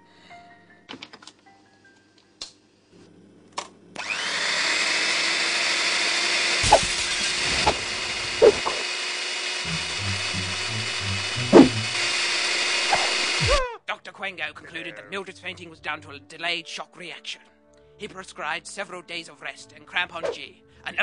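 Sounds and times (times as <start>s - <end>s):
stick blender motor whining: 4.0s - 13.6s.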